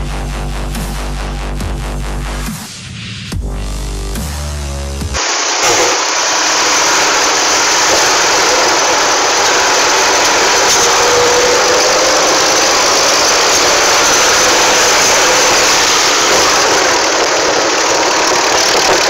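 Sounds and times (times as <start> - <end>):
tractor diesel engine running: 5.0 - 19.0.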